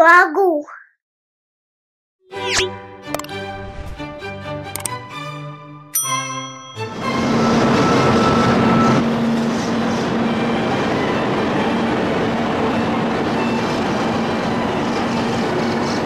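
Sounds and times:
musical jingle with chime: 4.8s - 9.0s
high-speed train rushing past: 6.8s - 16.0s.

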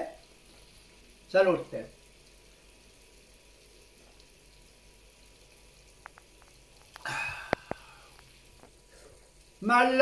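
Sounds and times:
faint clicks: 6.0s - 8.8s.

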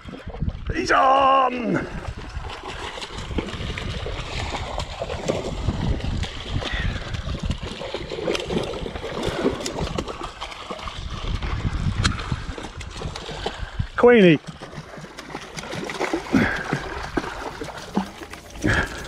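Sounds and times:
wind buffeting microphone: 0.0s - 1.0s, 1.8s - 18.0s
fish splashing in water: 2.1s - 13.8s, 14.4s - 19.0s.

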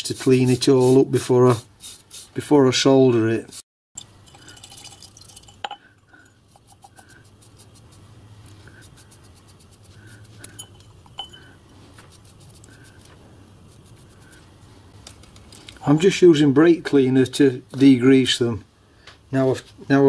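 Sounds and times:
metal clinking against glass jar: 4.0s - 7.1s, 10.4s - 11.6s
light brushing: 6.5s - 16.1s.

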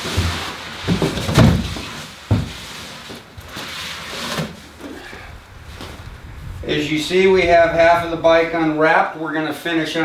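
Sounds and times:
cardboard scraping and rustling: 0.0s - 6.2s.

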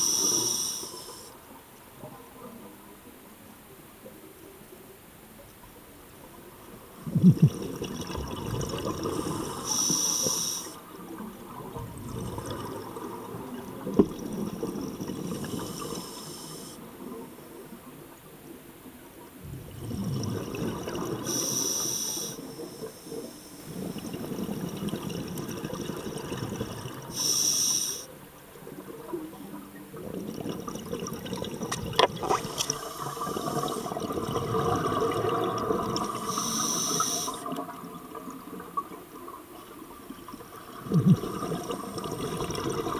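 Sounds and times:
regulator hissing inhale: 0.0s - 1.4s, 9.0s - 10.8s, 15.4s - 16.8s, 21.2s - 23.8s, 27.1s - 28.1s, 32.6s - 34.0s, 36.1s - 37.6s
bubbling exhales: 7.0s - 10.3s, 19.4s - 22.3s, 30.0s - 37.8s, 40.6s - 42.9s.

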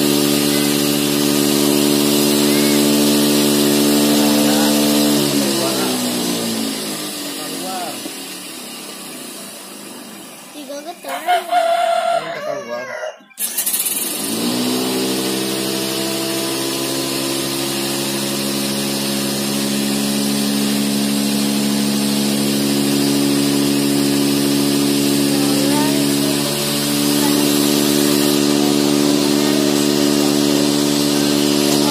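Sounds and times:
cotton candy machine humming: 0.0s - 31.9s
rooster crowing: 11.1s - 13.4s.

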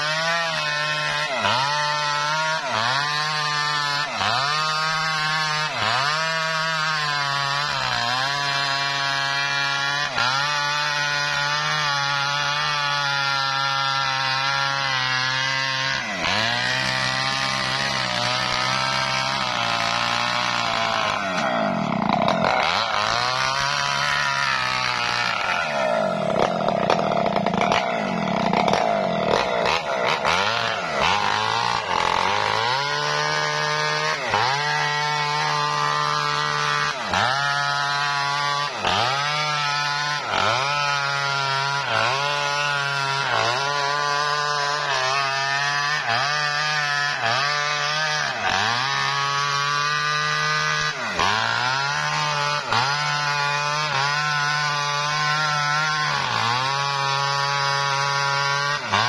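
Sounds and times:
chainsaw cutting a log: 0.0s - 59.0s.

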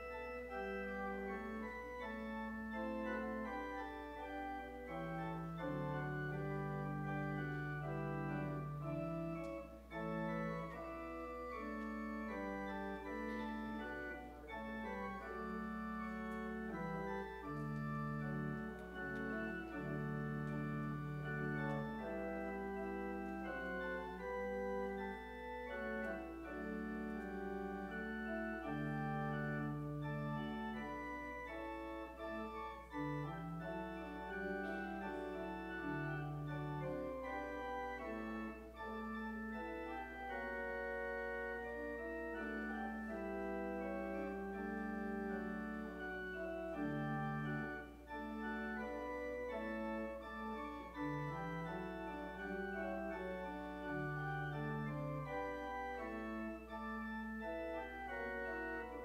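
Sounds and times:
church organ chords: 0.0s - 59.0s.

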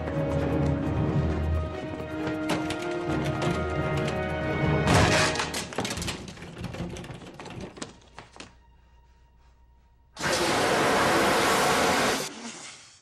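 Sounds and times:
door cracking and splintering: 2.2s - 8.5s
fire extinguisher hissing: 10.2s - 13.0s.

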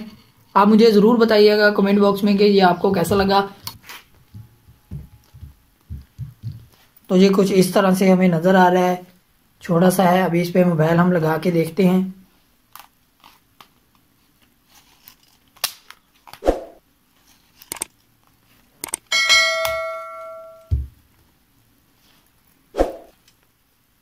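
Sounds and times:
bright bell-like ding: 19.1s - 20.7s.

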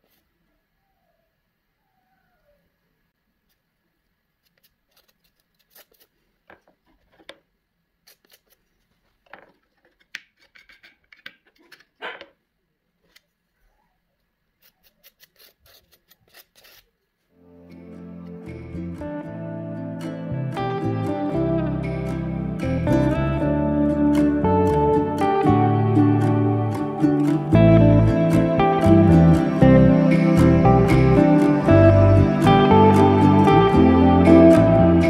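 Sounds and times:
palette knife scraping paint: 4.5s - 6.2s, 8.1s - 8.9s, 14.6s - 16.9s.

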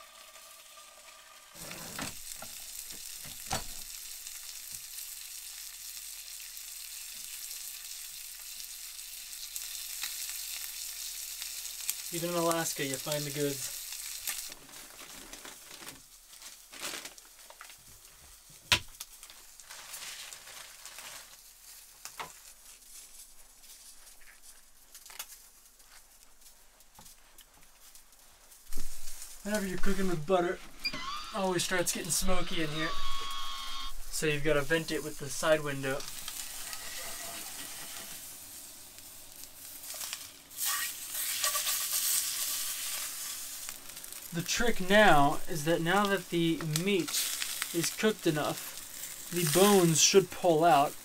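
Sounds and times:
fish sizzling in frying pan: 0.0s - 26.6s, 27.8s - 30.0s, 31.0s - 51.0s
food package crinkling: 13.0s - 28.2s, 31.6s - 51.0s.

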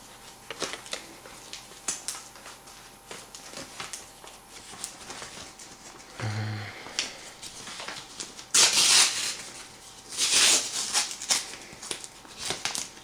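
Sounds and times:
paper envelope tearing: 7.4s - 13.0s.

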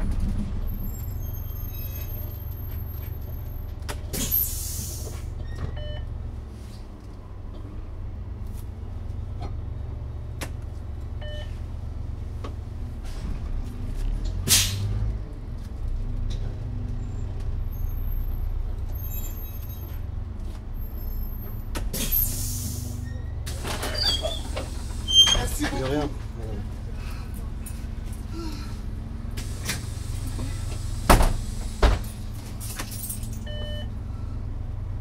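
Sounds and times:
bus engine and road rumble: 0.0s - 35.0s
compressed air hiss: 29.4s - 31.8s.

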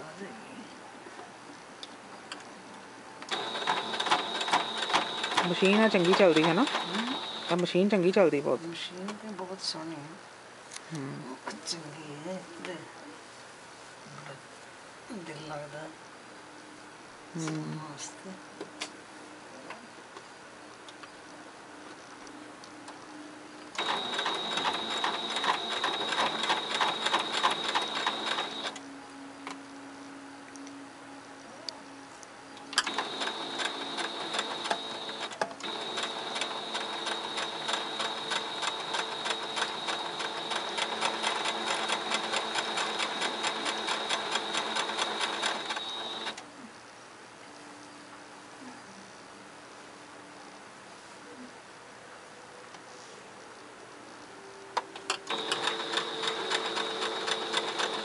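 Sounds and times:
sewing machine stitching: 3.3s - 7.6s, 23.8s - 28.7s, 32.8s - 46.4s, 55.3s - 58.0s.

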